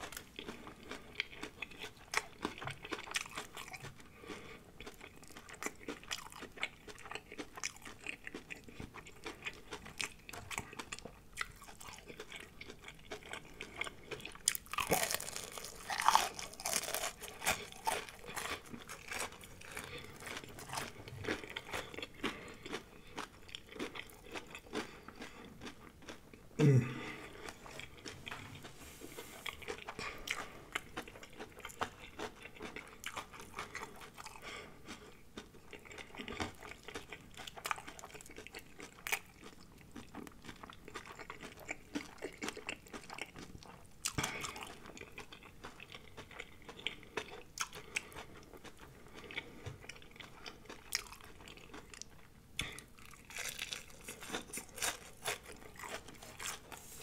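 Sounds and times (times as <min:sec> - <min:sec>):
crunchy chewing: 0:00.0 - 0:57.0
person humming: 0:26.6 - 0:27.2.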